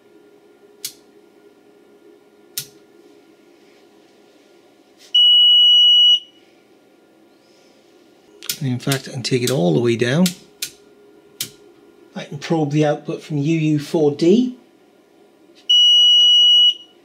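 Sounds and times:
control switch clicks: 0.8 - 1.0, 2.6 - 2.8, 8.4 - 9.6, 10.2 - 10.8, 11.4 - 11.6.

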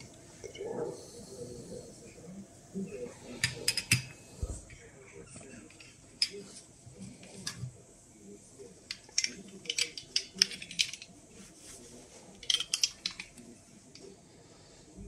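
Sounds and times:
small glass tubes clicking together: 8.9 - 11.1, 12.4 - 13.4.

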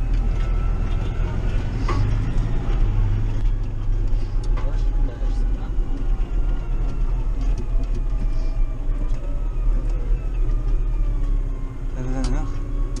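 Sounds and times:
tractor diesel engine rumbling: 0.0 - 13.0.

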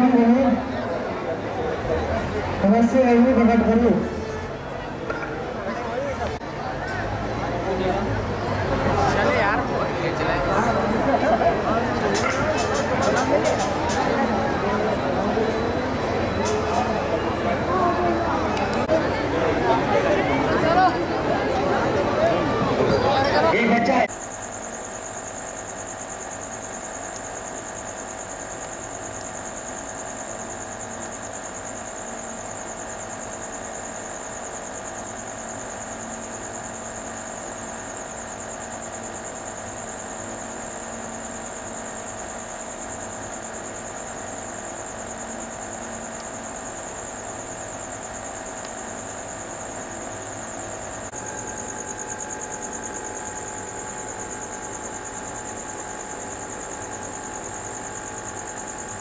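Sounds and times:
thin high whine: 5.9 - 59.0
aquarium filter and pump hum: 24.1 - 59.0.

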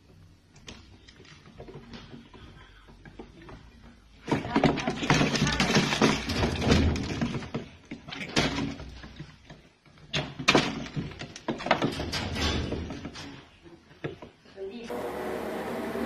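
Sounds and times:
animals knocking against wooden walls: 1.5 - 9.3.

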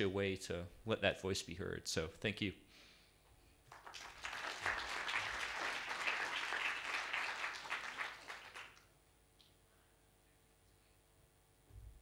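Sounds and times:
audience applauding: 3.7 - 8.9.

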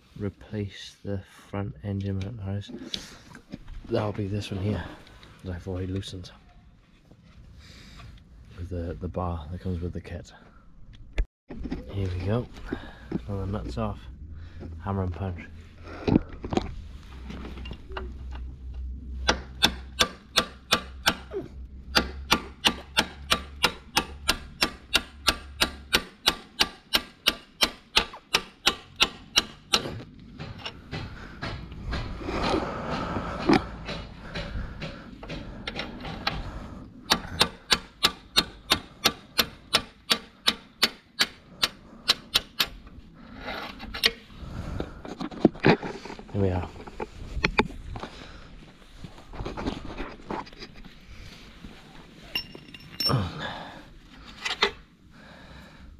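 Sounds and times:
hammer striking steel punch: 19.2 - 21.3, 21.9 - 30.0.

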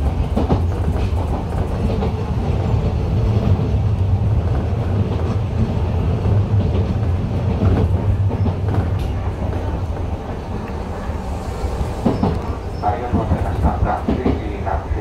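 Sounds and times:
train wheels rumbling on rail: 0.0 - 15.0
track clicks: 8.4 - 14.4.

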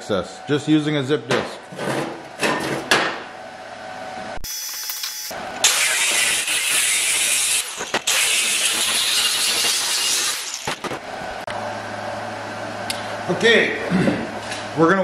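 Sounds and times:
angle grinder cutting steel mesh: 5.6 - 11.4.

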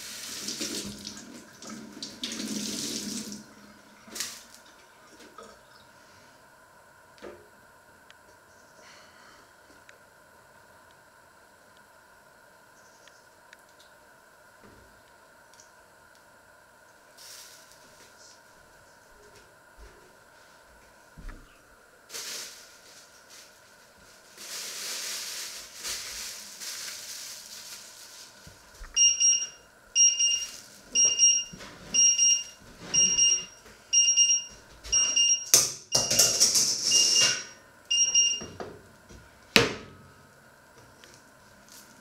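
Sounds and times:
kitchen timer beeping: 29.0 - 36.3, 36.9 - 38.5.

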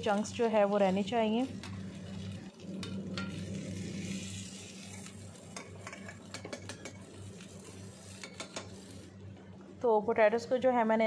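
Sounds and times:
oil sizzling in a pan: 0.0 - 9.3
potato masher scraping and tapping: 8.2 - 8.8.

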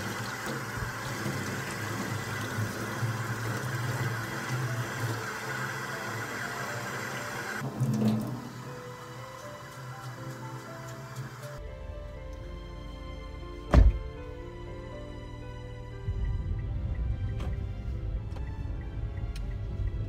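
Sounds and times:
tap water running: 0.0 - 11.6.

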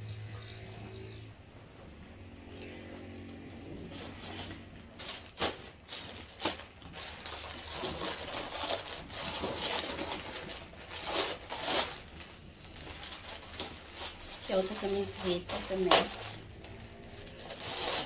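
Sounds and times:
plastic mailer bag rustling: 3.7 - 18.0
sharp plastic crackles: 3.8 - 18.0.

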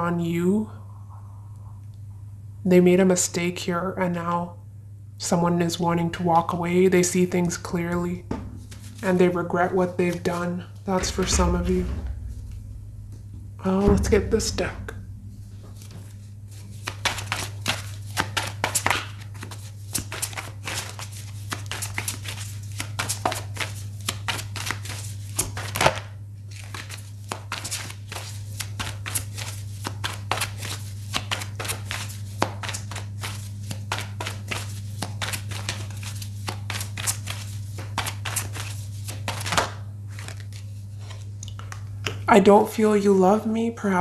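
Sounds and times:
low hum: 0.0 - 19.5
cards shuffling: 8.7 - 9.2, 15.8 - 41.9.

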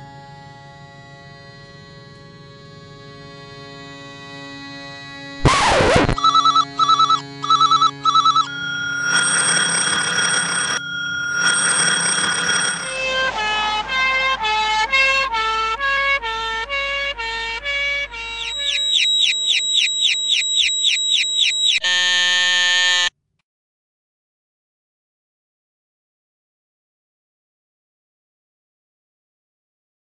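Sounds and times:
loud noise burst: 5.4 - 6.2
short paired electronic beeps: 5.4 - 9.4, 18.5 - 21.8
high-low warbling siren: 5.4 - 15.7, 18.2 - 23.1
steady alarm tone with hiss: 7.6 - 13.9, 18.4 - 23.1.

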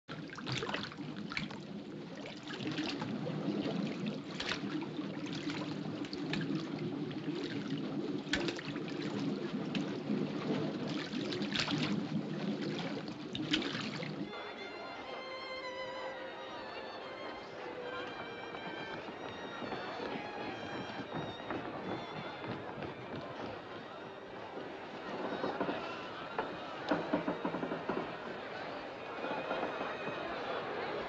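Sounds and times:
water flowing and sloshing: 0.0 - 15.1, 17.4 - 28.7
person wading splashes: 0.1 - 14.4.

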